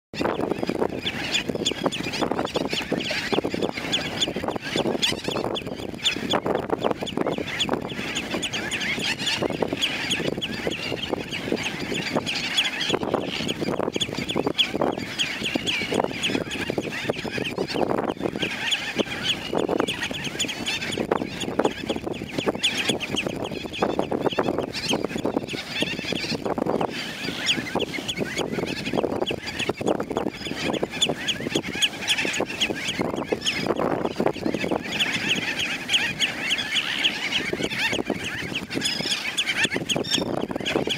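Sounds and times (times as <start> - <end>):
colony of gulls calling: 0.2 - 40.9.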